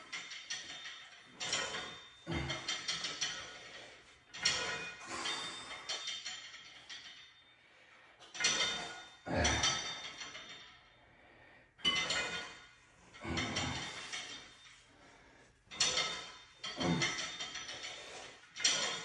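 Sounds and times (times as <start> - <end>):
man breathing hard: 11.0 - 12.5, 13.2 - 19.0.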